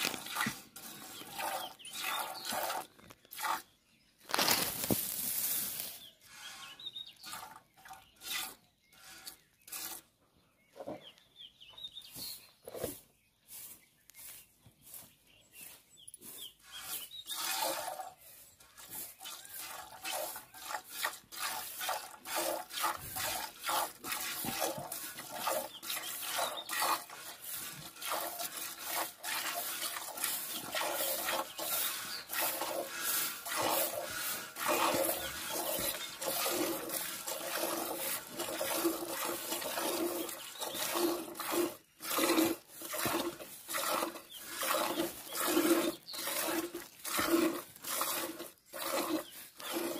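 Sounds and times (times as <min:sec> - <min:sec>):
milk squirting into steel pail: 0:00.0 - 0:05.6, 0:17.3 - 0:18.2, 0:19.2 - 0:49.9.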